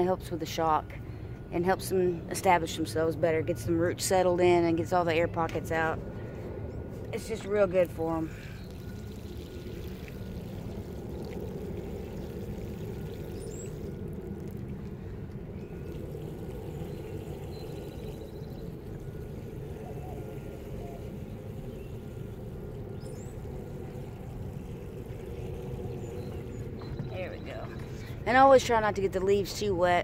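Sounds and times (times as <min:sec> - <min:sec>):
water pouring onto soil: 0:08.4 - 0:26.6.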